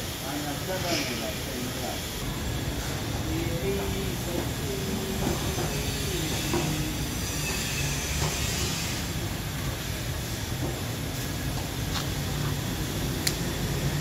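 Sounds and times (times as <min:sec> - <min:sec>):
hiss: 0:00.0 - 0:14.0.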